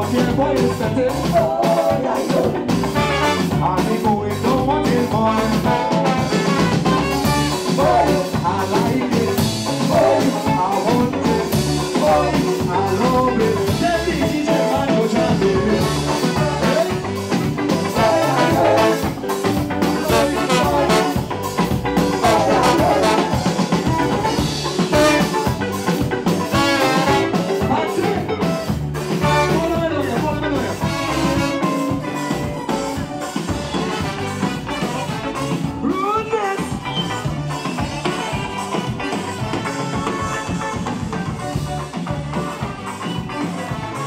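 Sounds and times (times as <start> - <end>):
singer on microphone: 0.0 - 21.2, 22.0 - 25.3, 26.6 - 28.6, 29.2 - 31.5, 35.8 - 39.2
electric guitar: 0.0 - 44.0
live calypso band playing: 0.0 - 44.0
trombone: 0.0 - 44.0.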